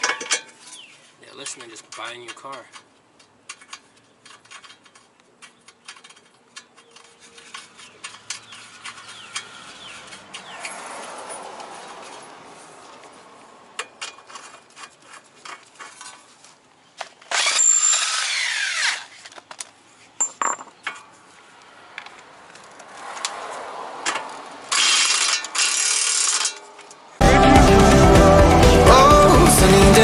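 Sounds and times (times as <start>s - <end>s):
hand tools clattering: 0.0s - 12.4s, 13.7s - 18.0s, 19.2s - 21.2s
cordless power tool bursts: 17.3s - 19.2s
music: 27.2s - 30.0s.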